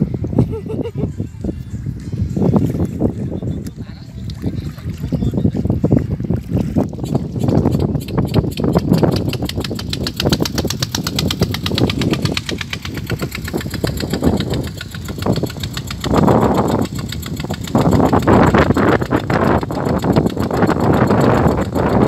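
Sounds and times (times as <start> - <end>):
small engine chugging: 6.9 - 22.0.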